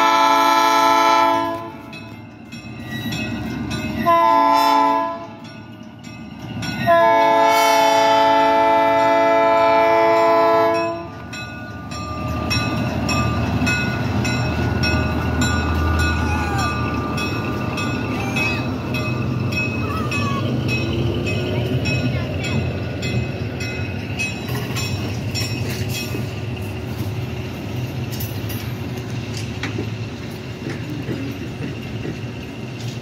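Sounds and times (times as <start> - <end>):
locomotive air horn: 0.0 - 1.9, 4.0 - 5.4, 6.9 - 11.1
crossing bell ringing: 0.0 - 33.0
diesel locomotive engine rumbling: 0.0 - 33.0.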